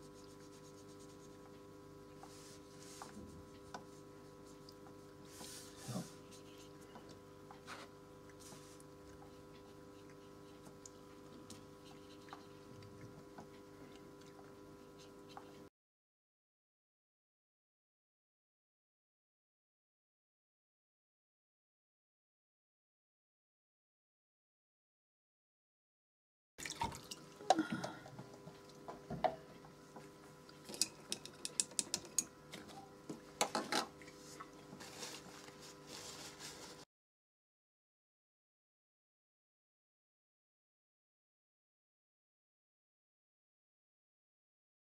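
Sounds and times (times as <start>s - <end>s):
faint steady hum: 0.0s - 15.7s, 26.6s - 36.8s
paintbrush ticking on paper: 0.1s - 5.0s
faint hum: 26.8s - 36.8s
soft rustle: 34.2s - 36.8s.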